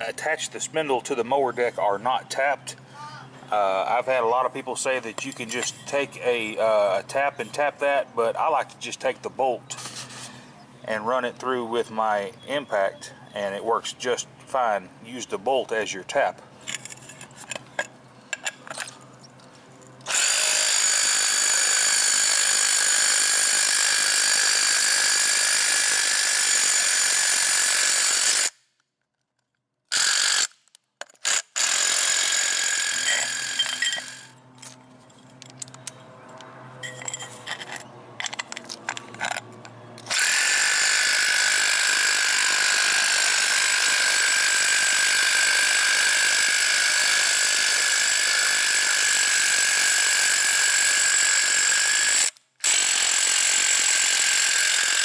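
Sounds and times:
impact driver whining: 20.0s - 28.6s, 29.9s - 34.4s, 40.0s - 55.0s
handling clicks: 34.6s - 40.1s.

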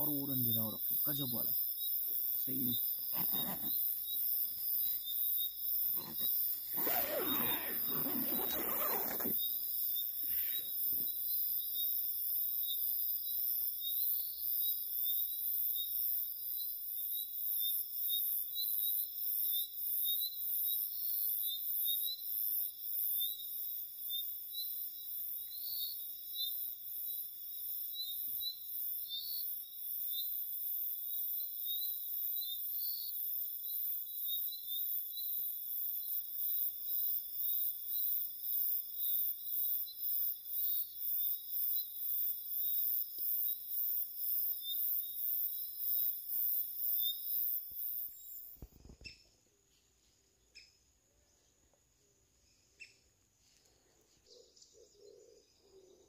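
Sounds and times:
crickets trilling: 0.0s - 49.4s.

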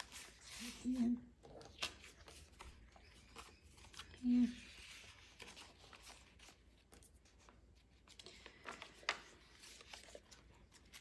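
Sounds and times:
paper pages rustling: 0.0s - 11.0s
soft clicks of pages: 4.8s - 11.0s.

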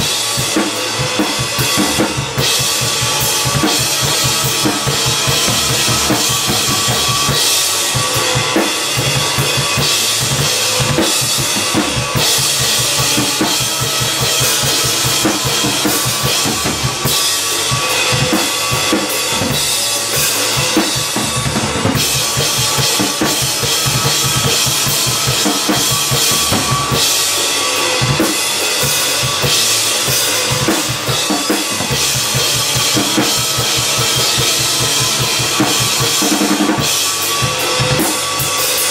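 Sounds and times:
crashing cymbals: 0.0s - 38.9s
looped electric guitar: 0.0s - 38.9s.

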